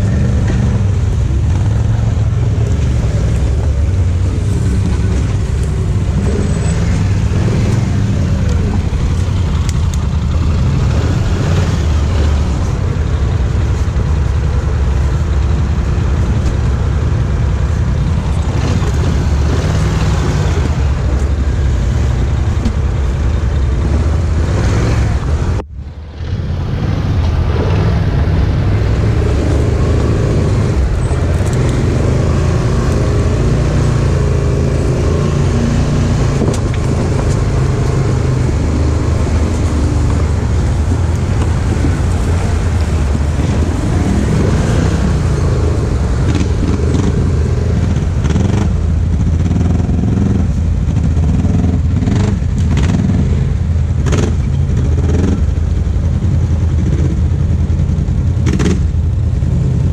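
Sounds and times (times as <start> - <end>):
quad engine running: 26.5 - 59.9.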